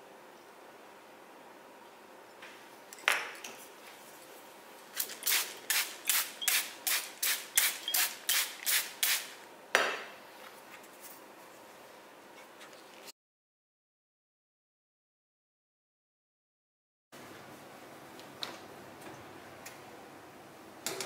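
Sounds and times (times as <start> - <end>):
spray bottle spritzing: 5.0 - 9.4.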